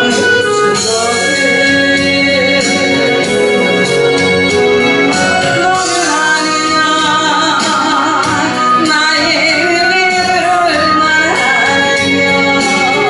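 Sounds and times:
woman singing: 0:00.0 - 0:04.0, 0:05.2 - 0:13.0
backing music: 0:00.0 - 0:13.0.

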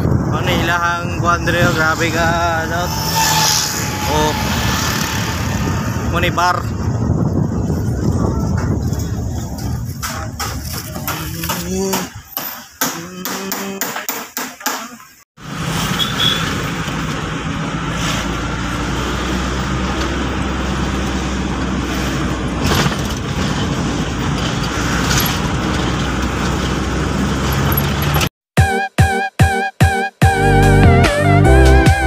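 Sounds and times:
vehicle engine hum: 0:00.0 - 0:11.6, 0:15.4 - 0:28.3
road noise: 0:00.0 - 0:13.0, 0:14.7 - 0:28.4.

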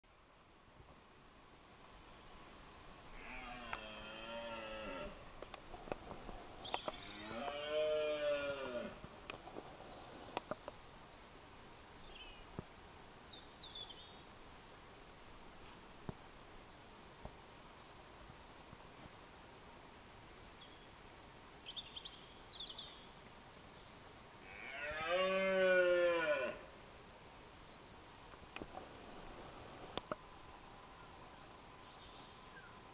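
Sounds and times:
deer stag roaring: 0:03.2 - 0:05.2, 0:07.0 - 0:09.0, 0:24.4 - 0:26.6
small birds chirping: 0:05.6 - 0:08.1, 0:20.6 - 0:24.7, 0:26.8 - 0:32.8.

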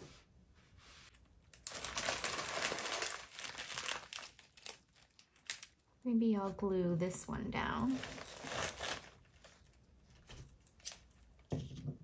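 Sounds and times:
craft supplies crinkling and rustling: 0:01.1 - 0:05.8, 0:07.6 - 0:11.1.

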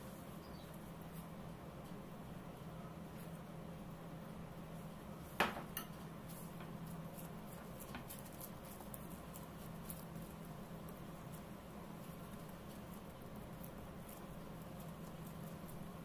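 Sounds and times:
low steady hum: 0:00.0 - 0:16.0
plastic wrap crinkling: 0:06.3 - 0:16.0.

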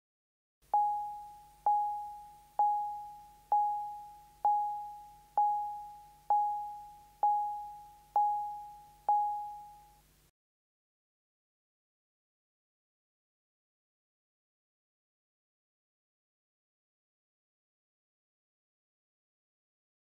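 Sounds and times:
electronic chime beeps: 0:00.8 - 0:10.0.

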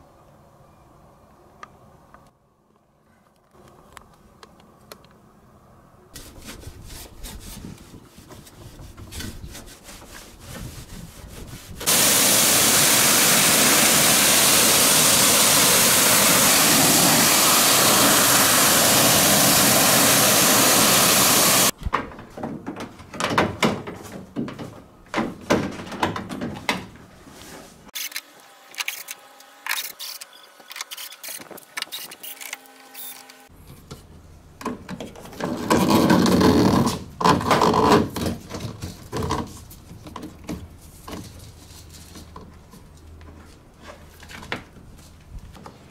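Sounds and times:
pressure washer spraying hiss: 0:11.9 - 0:21.7.

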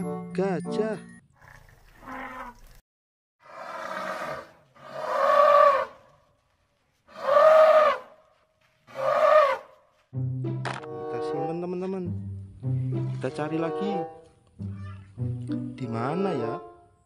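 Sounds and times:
elephant trumpeting: 0:03.5 - 0:06.0, 0:07.1 - 0:08.1, 0:08.9 - 0:09.7.

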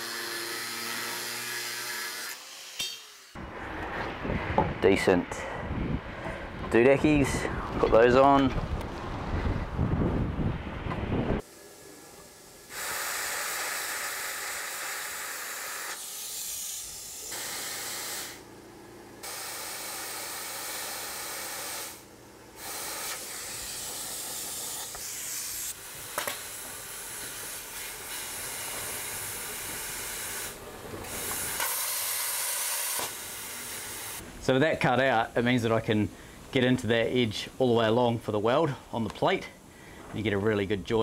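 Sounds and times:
plasma cutter hissing: 0:11.4 - 0:18.5, 0:19.2 - 0:34.2.

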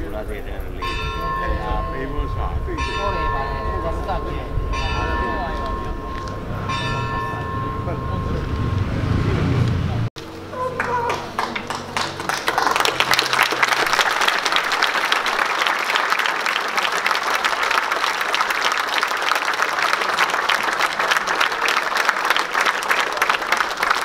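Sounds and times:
crowd applauding: 0:10.5 - 0:24.0.

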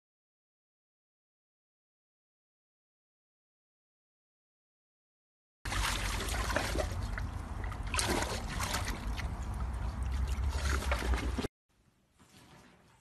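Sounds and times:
dog splashing in water: 0:05.7 - 0:11.5.

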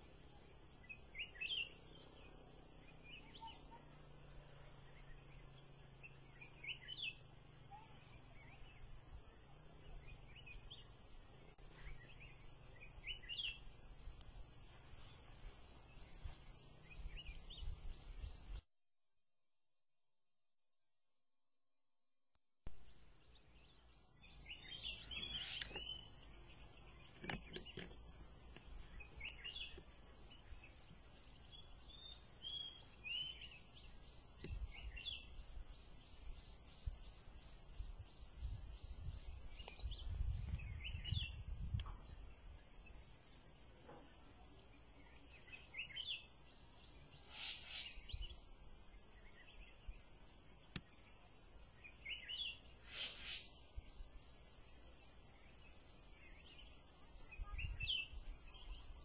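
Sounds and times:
short chirping calls: 0:24.2 - 0:28.0, 0:47.2 - 0:48.4, 0:52.0 - 0:53.6.

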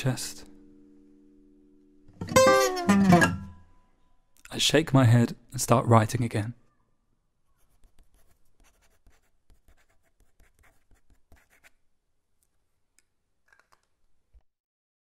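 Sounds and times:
pen scratching on paper: 0:07.6 - 0:11.7.

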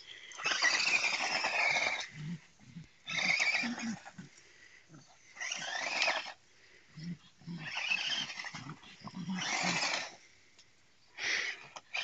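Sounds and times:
dog snorting and grunting: 0:00.4 - 0:06.3, 0:07.0 - 0:10.2.

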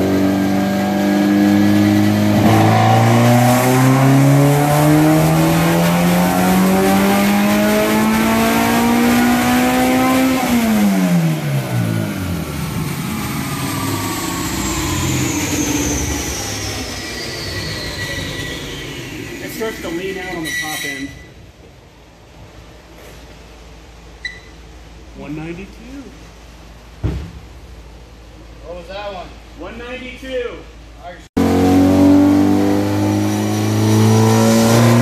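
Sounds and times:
engine revving on a dyno: 0:00.0 - 0:20.1, 0:31.4 - 0:35.0
high whine falling in pitch: 0:11.3 - 0:20.3.

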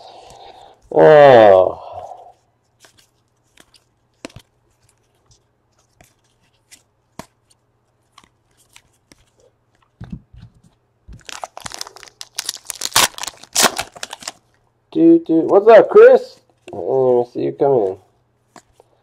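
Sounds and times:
card pack wrapper crinkling: 0:11.1 - 0:14.6.

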